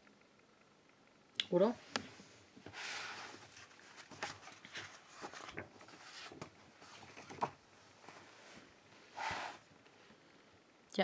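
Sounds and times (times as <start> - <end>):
soft rustle: 2.0 - 10.3.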